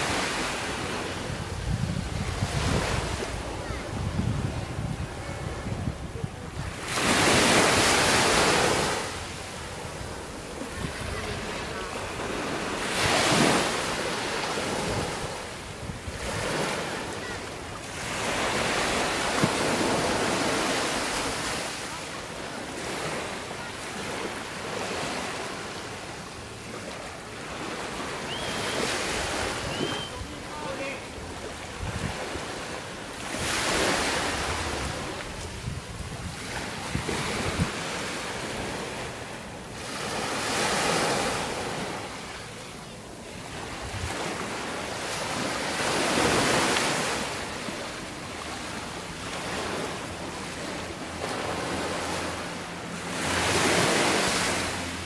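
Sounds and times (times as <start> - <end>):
wind on microphone: 0.0 - 9.1, 31.6 - 32.4, 33.3 - 37.8
small waves breaking on sand: 0.0 - 55.0.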